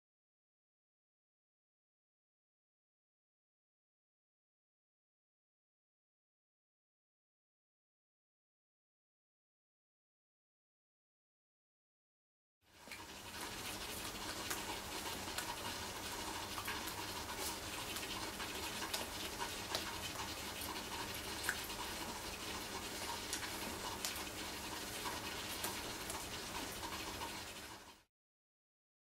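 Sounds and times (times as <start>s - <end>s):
room noise hiss: 12.7s - 28.1s.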